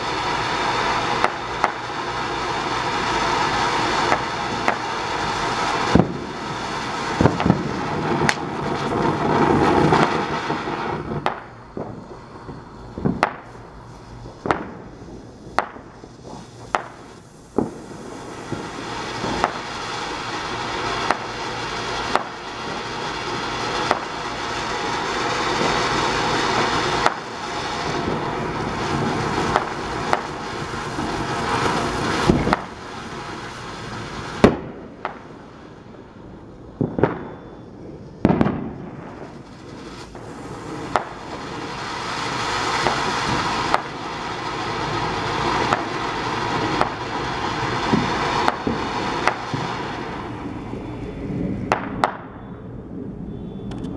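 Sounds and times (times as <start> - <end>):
fireworks fountain hissing sparks: 0.0 - 52.3
sharp cracks and pops: 8.2 - 9.0.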